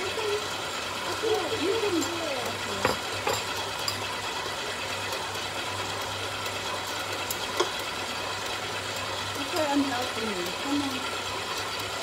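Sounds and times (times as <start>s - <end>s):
stand mixer motor humming: 0.0s - 12.0s.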